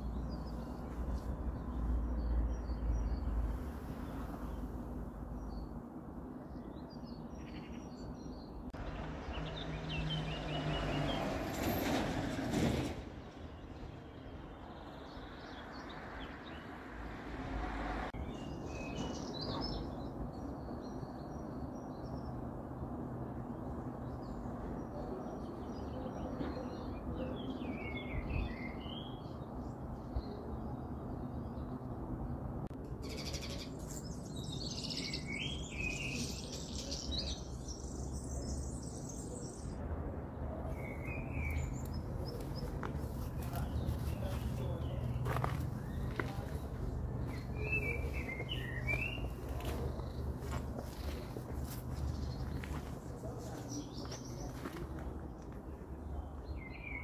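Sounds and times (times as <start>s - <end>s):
small birds chirping: 32.8s - 39.8s, 40.7s - 57.0s.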